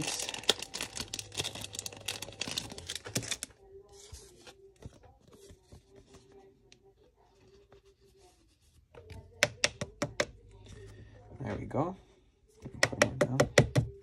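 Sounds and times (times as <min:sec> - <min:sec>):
plastic packaging crinkling and tearing: 0:00.0 - 0:03.6.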